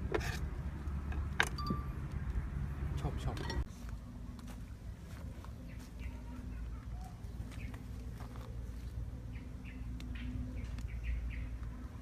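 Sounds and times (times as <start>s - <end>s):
small birds chirping: 5.0s - 12.0s.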